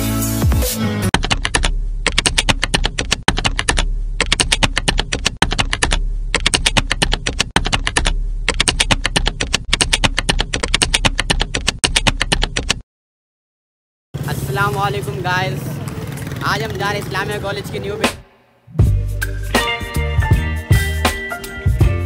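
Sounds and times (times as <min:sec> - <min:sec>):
rapid keyboard key clicks: 0:01.1 - 0:12.8.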